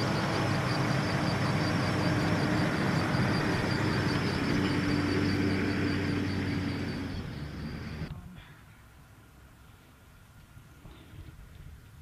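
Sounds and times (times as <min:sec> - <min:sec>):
vehicle engine running: 0:00.0 - 0:08.1.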